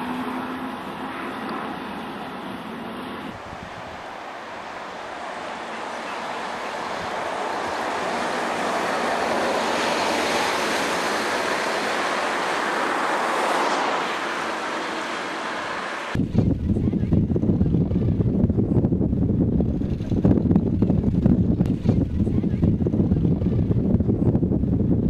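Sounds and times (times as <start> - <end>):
bus passing close by: 0.0 - 16.2.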